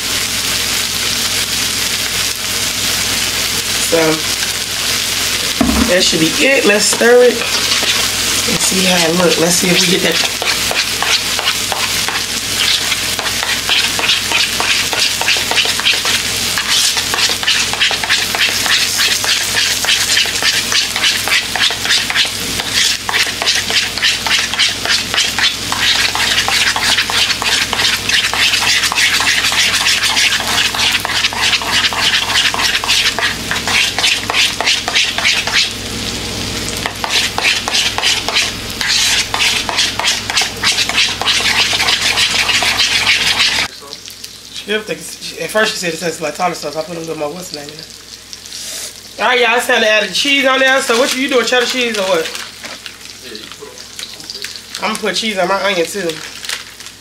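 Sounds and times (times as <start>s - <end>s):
patties sizzling on a griddle: 0.0s - 57.0s
spoon stirring thick sauce: 9.8s - 35.7s, 36.9s - 43.7s.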